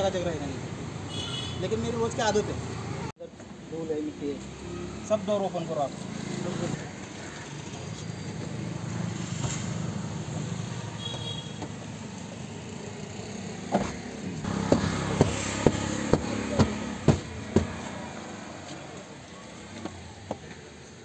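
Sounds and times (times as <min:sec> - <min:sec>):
sharp knocks: 0:13.7 - 0:17.8.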